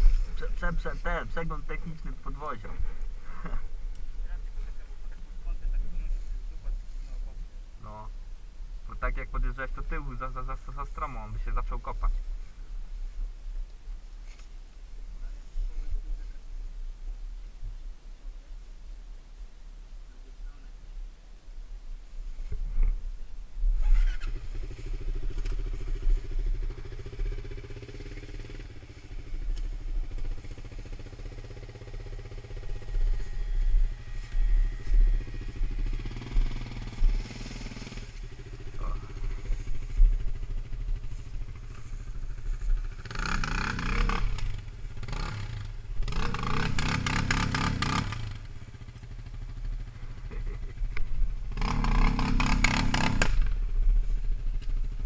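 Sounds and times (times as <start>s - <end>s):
engine throttle bursts: 23.8s - 53.7s
quad engine idling: 23.8s - 55.0s.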